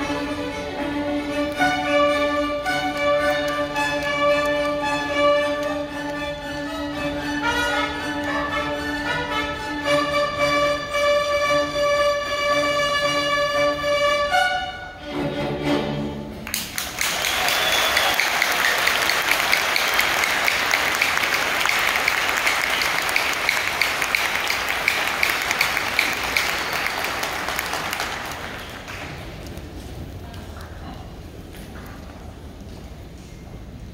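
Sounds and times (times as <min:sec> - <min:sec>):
audience applause: 0:16.4 - 0:29.5.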